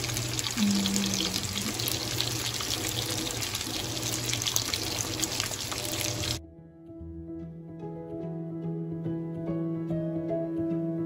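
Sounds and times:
bacon sizzling in a skillet: 0.0 - 6.4.

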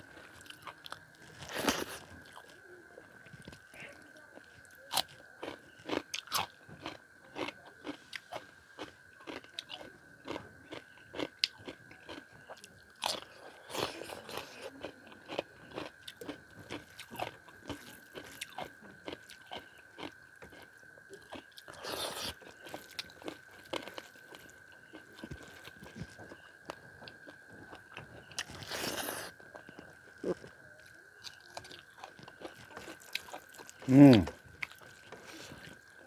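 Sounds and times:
faint high-pitched hum: 0.0 - 36.0
crisp crunches: 1.2 - 2.6.

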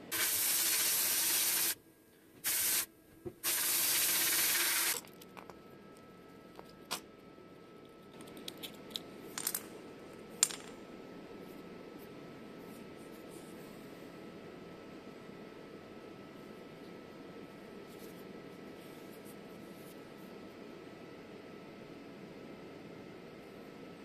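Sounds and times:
sandblasting gun spraying abrasive: 0.1 - 1.8, 2.5 - 5.0.

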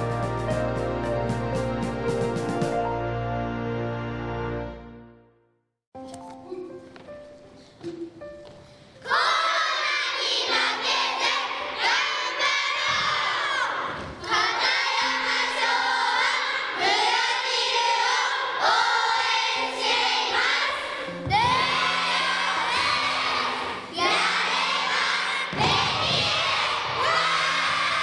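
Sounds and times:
background music with low notes: 0.0 - 9.4
children chanting cheers in unison: 9.1 - 28.0.

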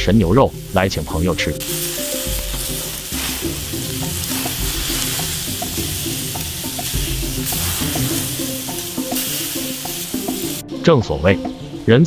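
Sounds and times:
faint background music: 0.0 - 12.0
steaks sizzling on hot stones: 0.2 - 10.6.

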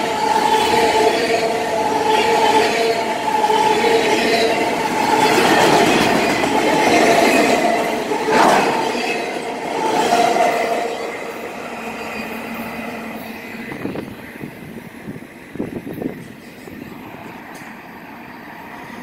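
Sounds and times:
train wheels rumbling on rails: 0.0 - 19.0
train wheels squealing: 10.9 - 14.0.

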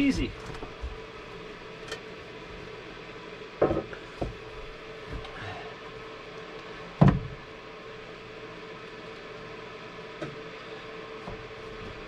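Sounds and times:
floor planks knocking and thumping: 3.6 - 4.4.

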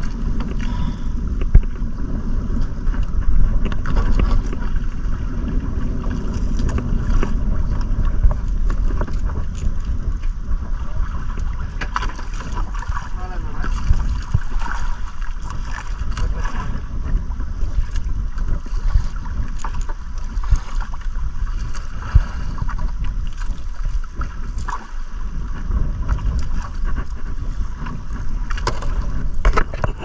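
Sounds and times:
water washing around boat hull: 0.0 - 30.0
wind buffeting microphone: 0.0 - 30.0.

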